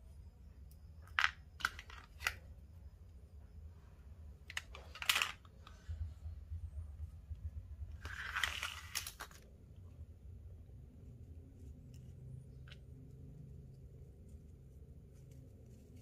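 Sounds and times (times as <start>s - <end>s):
small tools clicking and knocking: 4.4s - 5.8s.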